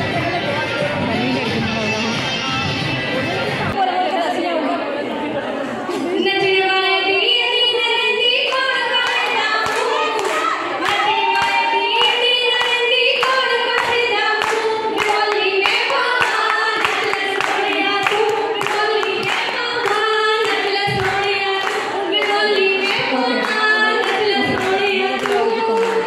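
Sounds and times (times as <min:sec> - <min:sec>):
women singing folk song: 0:06.0 - 0:26.0
rhythmic hand-clapping: 0:08.4 - 0:26.0.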